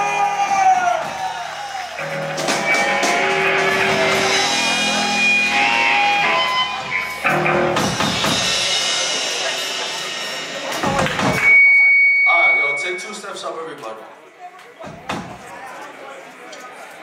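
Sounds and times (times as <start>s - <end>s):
bass notes: 2.0s - 11.5s
electric guitar strumming: 2.0s - 12.7s.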